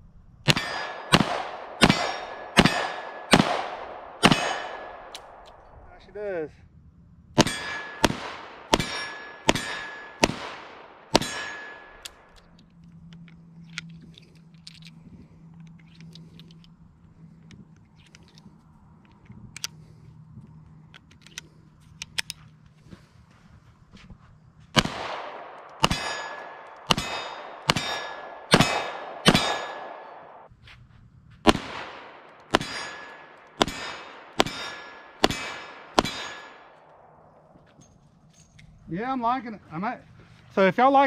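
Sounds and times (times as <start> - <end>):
revolver gunshots with echo: 0.5 - 5.4, 7.4 - 12.3, 24.8 - 30.5, 31.5 - 37.3
metallic clicks of loading cartridges: 11.8 - 22.8, 36.4 - 38.9.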